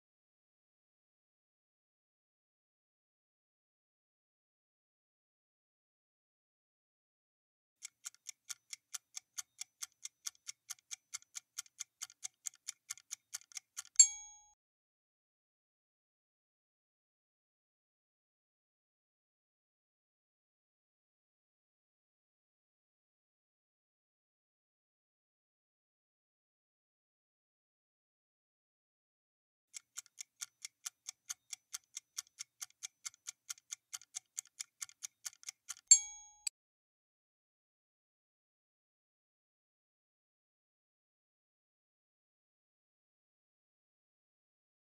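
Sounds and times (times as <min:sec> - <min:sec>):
quick clock ticking: 0:07.8 - 0:14.4, 0:29.7 - 0:36.5
click: 0:07.8 - 0:14.6, 0:29.7 - 0:36.5.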